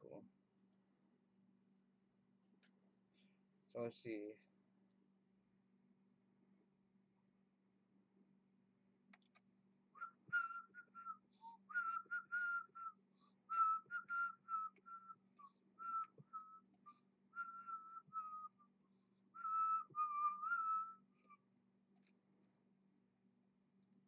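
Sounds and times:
man whistling: 10.0s - 18.7s, 19.4s - 21.4s.

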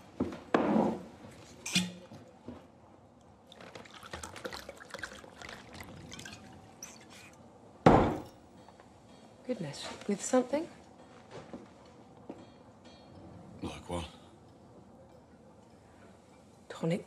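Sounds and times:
liquid pouring into glass over ice: 3.5s - 7.4s.

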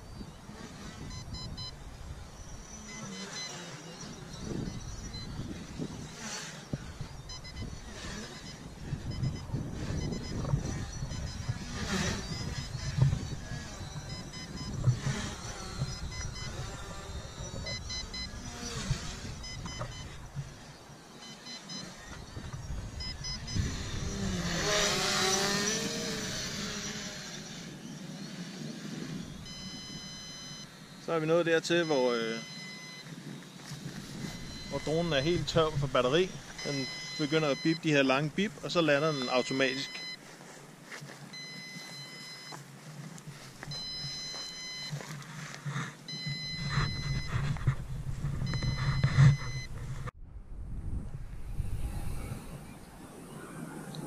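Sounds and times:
drone propellers whirring: 0.0s - 54.0s
short high beeps: 0.9s - 25.7s, 29.2s - 30.7s, 31.7s - 40.2s, 41.3s - 42.6s, 43.6s - 45.2s, 46.1s - 47.6s, 48.4s - 49.7s.

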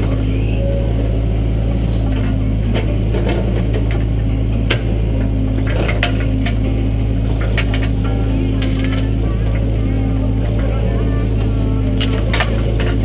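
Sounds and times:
diesel engine running: 0.0s - 13.0s
sharp clicks and knocks: 2.1s - 6.7s, 7.3s - 8.0s, 11.9s - 13.0s.

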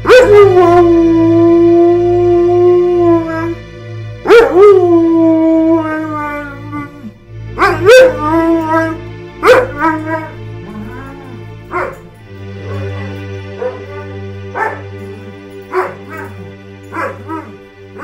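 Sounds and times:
dog howling: 0.0s - 3.6s, 4.3s - 12.1s, 12.7s - 18.0s
low sustained music notes: 0.0s - 18.0s.

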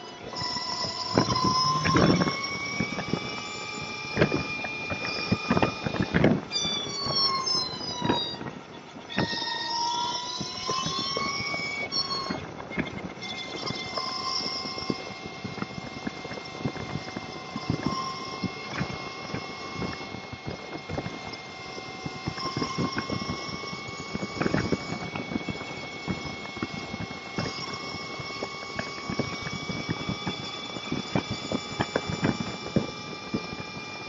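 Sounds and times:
motorcycle whine: 0.0s - 6.5s.

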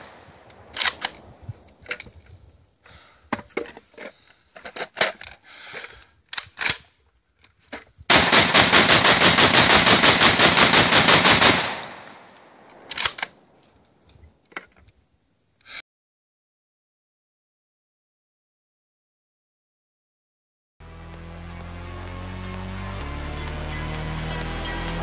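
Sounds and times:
metallic gun handling clicks: 0.5s - 2.2s, 6.3s - 7.6s, 12.4s - 13.6s
rapid shotgun fire: 8.1s - 13.3s.

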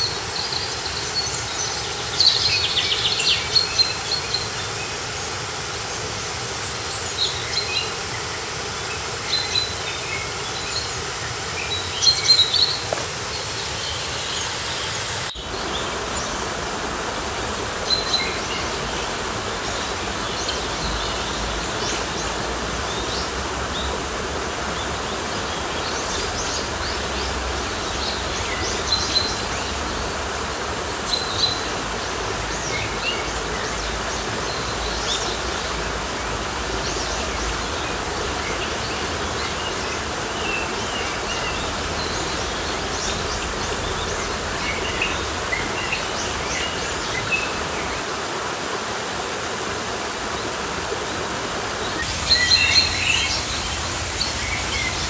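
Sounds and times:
small birds chirping: 51.6s - 55.0s.

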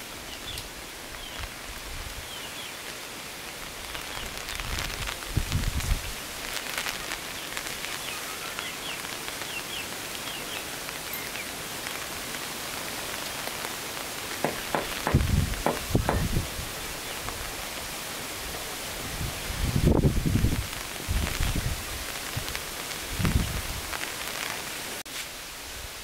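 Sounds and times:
steady hiss: 0.0s - 26.0s
knocks and low thumps: 14.4s - 16.4s.

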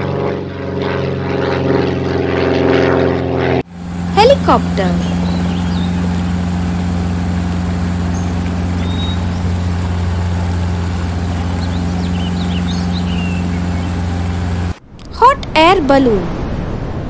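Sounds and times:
helicopter engine and rotor drone: 0.0s - 14.8s
faint high chirps: 4.0s - 14.8s.

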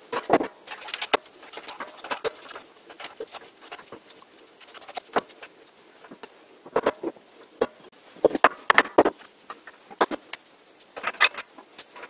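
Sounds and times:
metal parts clicking and knocking: 0.1s - 5.3s, 11.0s - 12.0s.

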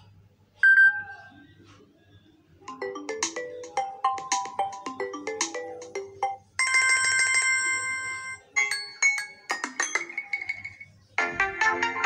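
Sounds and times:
phone ringtone tunes: 2.7s - 11.0s.

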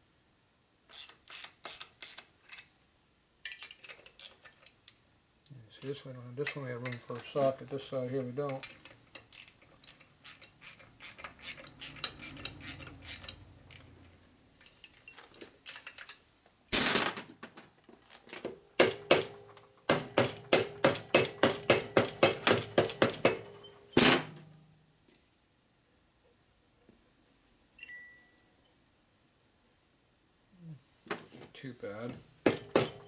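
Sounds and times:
socket ratchet clicking: 0.9s - 2.7s, 8.6s - 15.0s.

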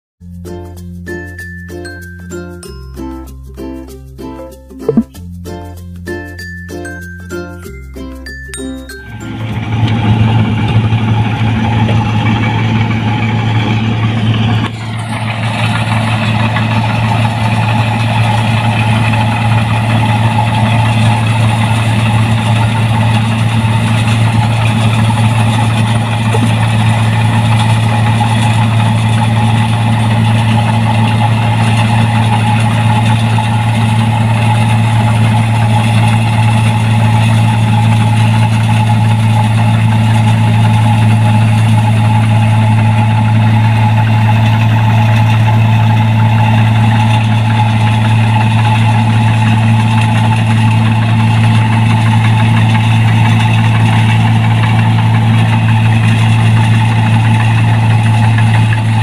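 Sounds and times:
combine harvester engine drone: 8.6s - 59.0s
steady high whine: 19.6s - 50.0s.

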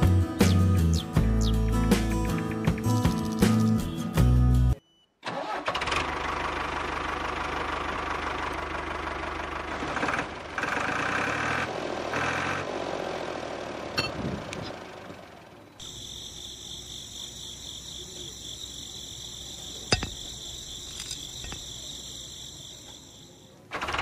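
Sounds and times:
background music: 0.0s - 4.8s
tractor engine running: 0.8s - 4.0s, 5.3s - 24.0s.

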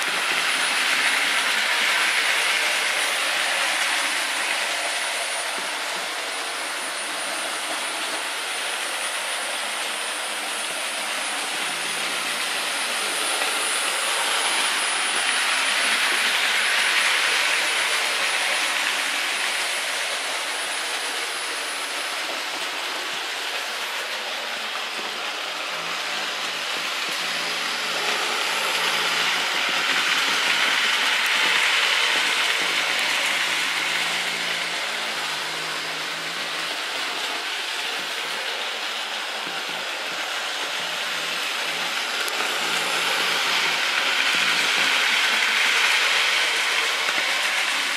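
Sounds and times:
model train wheels on rails: 0.0s - 47.9s.

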